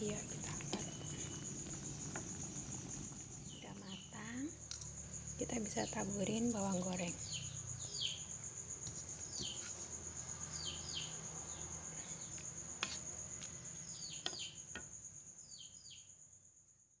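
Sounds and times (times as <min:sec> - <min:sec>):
cricket trilling: 0:00.0 - 0:16.3
bird chirping: 0:07.2 - 0:08.3.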